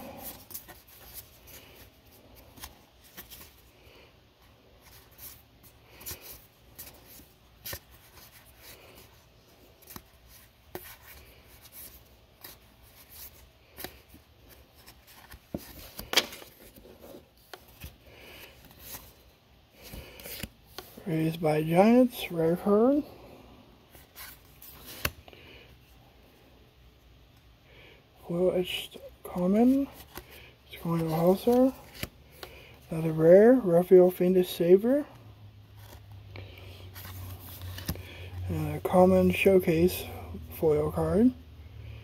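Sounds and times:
playing cards rustling and clicking: 0.0s - 21.4s, 23.9s - 25.4s, 28.6s - 33.1s, 35.8s - 39.5s.

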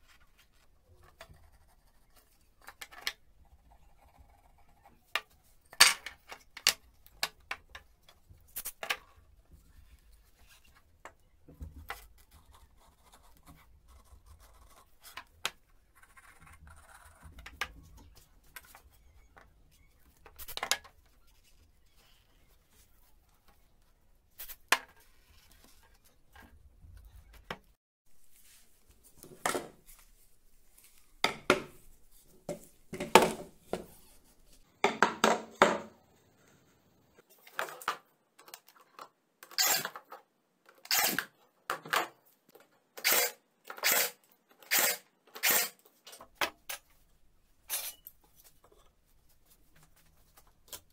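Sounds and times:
wooden parts knocking on board: 31.2s - 31.8s, 32.5s - 33.9s, 34.8s - 35.9s.

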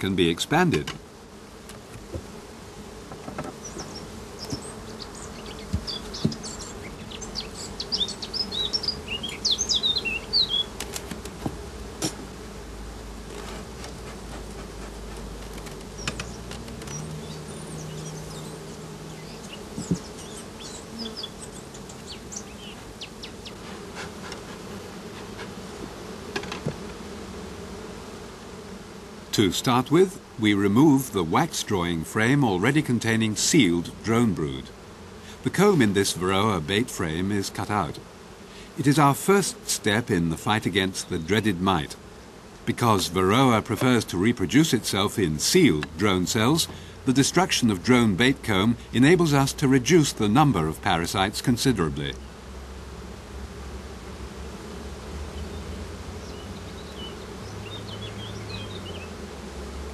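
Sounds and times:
honeybees buzzing: 0.0s - 59.9s.

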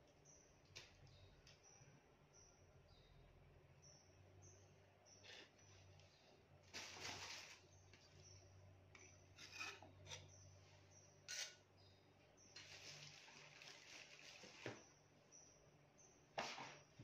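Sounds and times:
metal tongs scraping ceramic plate: 9.3s - 10.4s, 11.3s - 11.6s.

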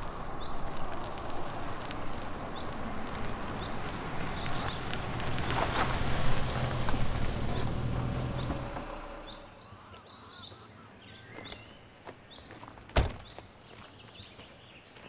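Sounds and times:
tyres crackling on gravel: 0.0s - 9.5s, 11.2s - 15.0s
small birds chirping: 3.6s - 5.7s, 7.5s - 15.0s
car engine running: 5.0s - 9.6s.

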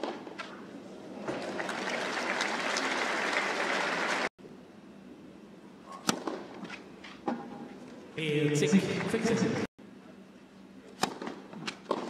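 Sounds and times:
crowd applauding: 1.3s - 4.3s.

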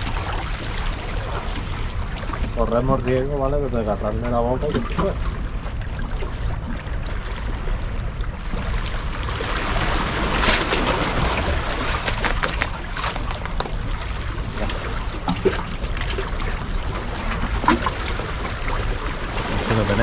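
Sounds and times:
low rumble: 0.0s - 20.0s
waves splashing on rocky shore: 8.5s - 20.0s.

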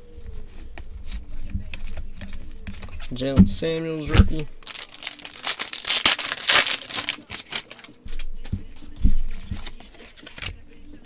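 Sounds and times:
foil wrapper crinkling: 4.3s - 8.6s, 9.3s - 10.6s
cards clicking together: 4.7s - 8.6s, 9.4s - 10.6s.

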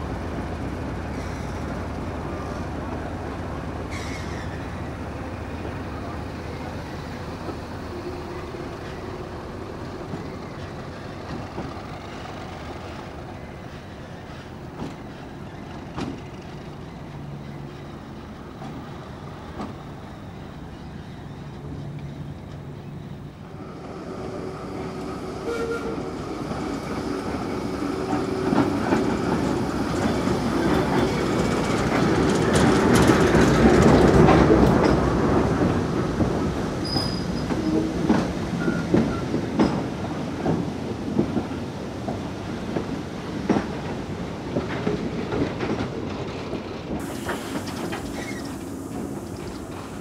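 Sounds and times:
diesel train passing: 0.0s - 50.0s
wheels clicking over rail joints: 26.5s - 50.0s.

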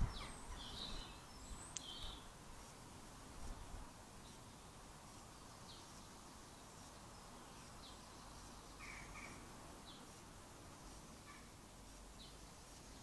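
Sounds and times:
faint bird chirps: 0.0s - 2.3s, 3.6s - 10.2s, 11.2s - 13.0s
lower bird calls: 0.0s - 2.4s, 5.4s - 10.1s, 11.2s - 13.0s
faint steady hiss: 0.0s - 13.0s.

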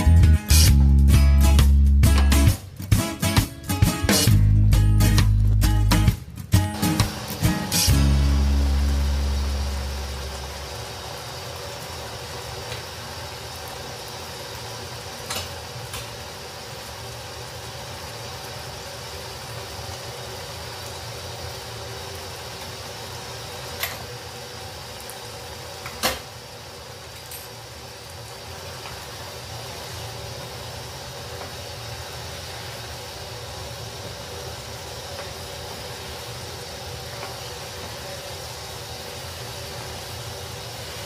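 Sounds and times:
curry bubbling in a pan: 8.3s - 41.0s.

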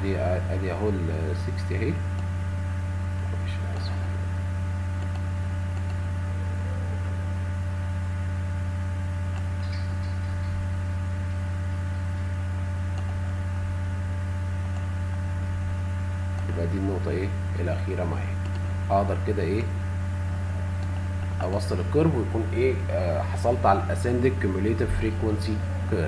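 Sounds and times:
electrical hum: 0.0s - 26.0s
faint clicks: 5.0s - 6.0s, 12.9s - 13.2s.

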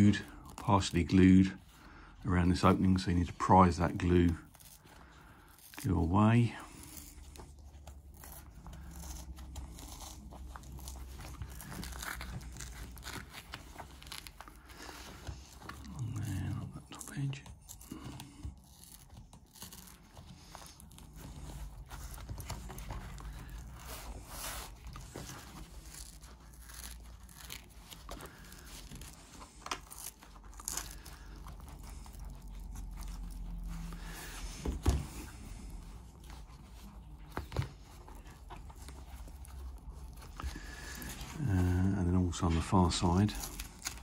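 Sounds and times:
cover tearing and scraping: 3.6s - 41.8s, 42.8s - 44.0s.

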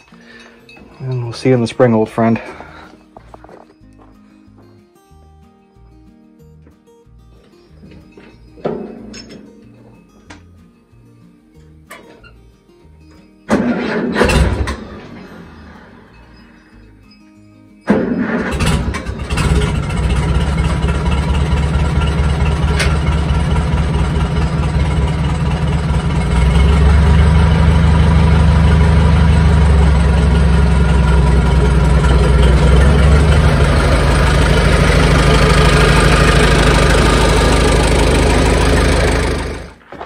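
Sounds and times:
tractor engine running: 13.5s - 16.6s, 17.8s - 40.0s.

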